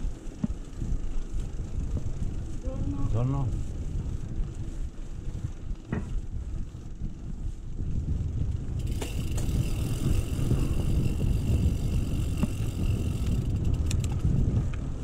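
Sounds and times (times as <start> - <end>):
bike rolling on pavement: 0.0 - 15.0
wind rumbling on microphone: 0.0 - 15.0
bike knocks: 0.3 - 0.7, 5.8 - 6.2, 8.8 - 10.8, 11.7 - 13.3.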